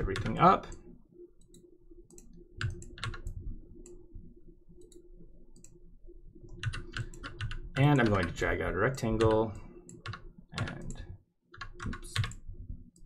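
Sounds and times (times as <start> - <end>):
faint steady hum: 0.0 - 13.0
computer mouse clicks: 1.4 - 4.0, 4.8 - 5.8, 6.5 - 8.4, 9.2 - 13.0.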